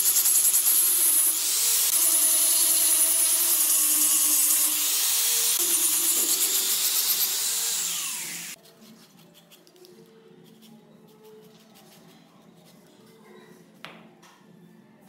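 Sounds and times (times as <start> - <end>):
angle grinder sanding wood: 0.0 - 8.6.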